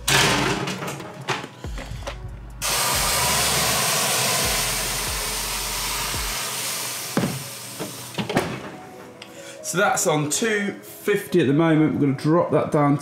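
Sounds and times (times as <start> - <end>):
water hissing into steam: 2.6 - 8.2.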